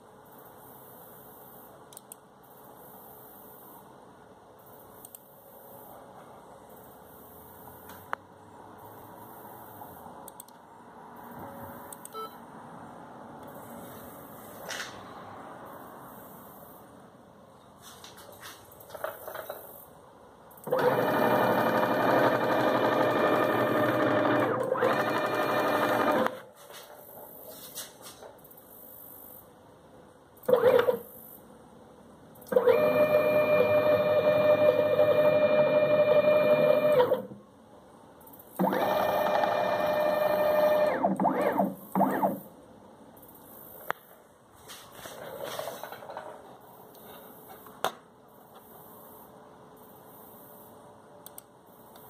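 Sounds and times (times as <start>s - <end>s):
sharp click: 1.9s - 2.2s, 51.2s - 52.0s
stepper motors whirring: 20.7s - 26.4s, 32.5s - 37.3s, 38.6s - 42.4s.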